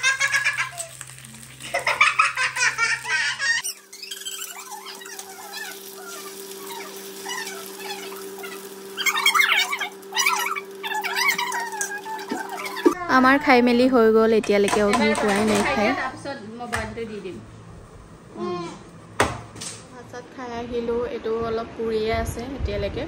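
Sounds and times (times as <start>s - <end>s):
child laughing: 0.0s - 1.0s, 1.6s - 13.1s.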